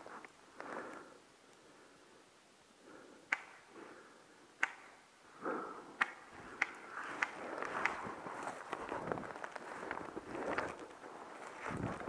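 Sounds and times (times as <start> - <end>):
sharp clicks: 3.3 - 3.6, 4.6 - 5.0
soft rustling: 6.4 - 12.0.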